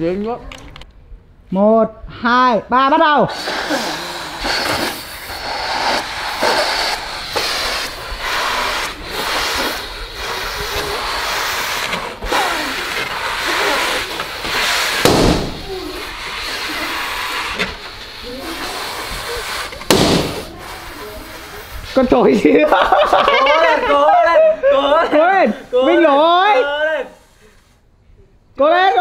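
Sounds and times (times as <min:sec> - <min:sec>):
sudden loud noise: 0:03.3 - 0:21.0
people eating rice: 0:03.3 - 0:24.9.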